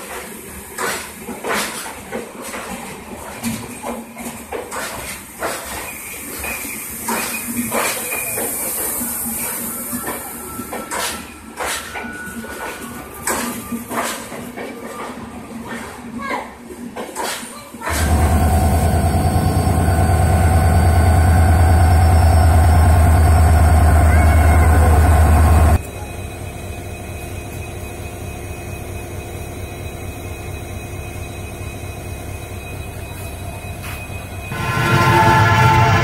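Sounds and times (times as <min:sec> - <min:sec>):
diesel locomotive engine rumble: 0:17.9 - 0:36.0.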